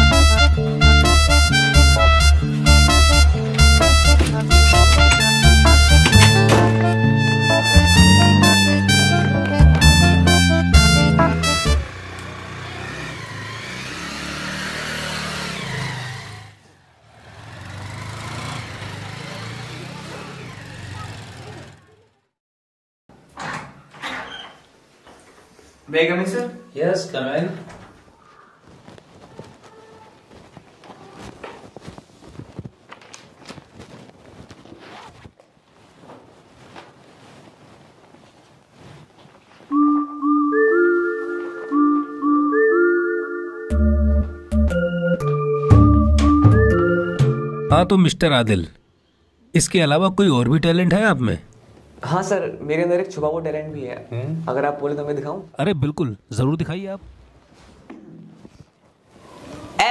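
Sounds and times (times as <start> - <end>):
organ-like keyboard music: 0.0 - 12.0, 39.7 - 48.3
chair moving: 2.6 - 7.6
footsteps: 2.6 - 8.7, 27.7 - 39.8
motorcycle engine pulling away: 11.8 - 22.1
paper rustling: 27.8 - 39.7.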